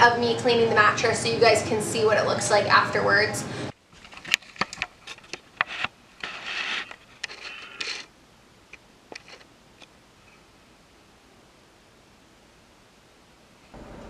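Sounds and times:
faint steady hiss: 0:00.0 - 0:14.0
scraping and rustling: 0:03.9 - 0:08.1, 0:09.1 - 0:09.5.

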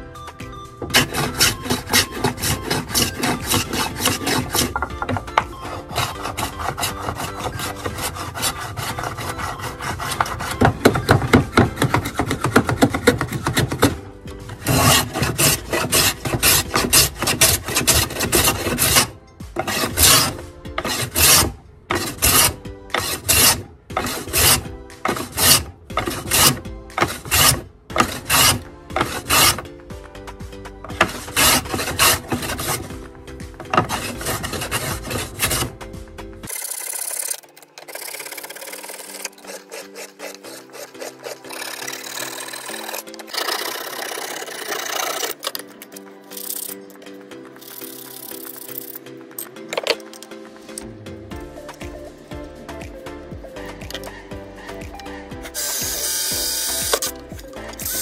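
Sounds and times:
hand plane shaving wood: 0:00.8 - 0:29.7, 0:30.8 - 0:35.8, 0:36.4 - 0:45.8.

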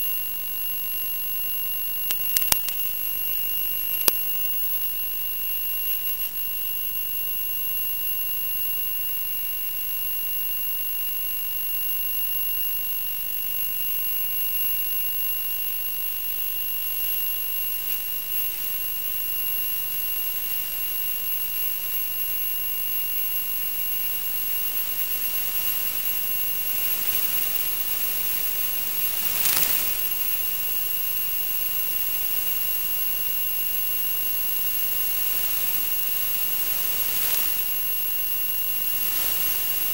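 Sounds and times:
crackle of static: 0:00.0 - 0:39.9
steady hiss: 0:02.1 - 0:04.8, 0:17.4 - 0:39.9.

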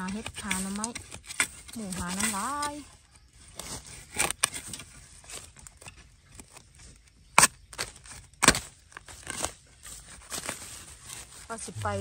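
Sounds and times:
small crackles: 0:00.0 - 0:11.8
blade chopping into soil: 0:07.4 - 0:09.5.

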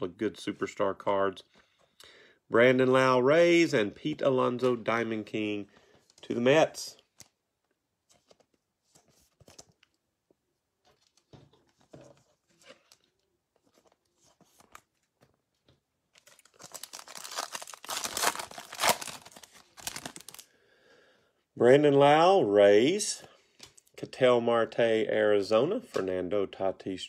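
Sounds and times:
foil wrapper ripping and crinkling: 0:16.2 - 0:20.4.

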